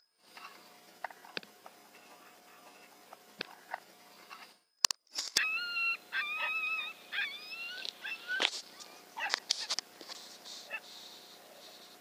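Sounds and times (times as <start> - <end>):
coyotes howling and yipping: 0.4 - 3.8, 5.4 - 9.9, 10.5 - 11.9.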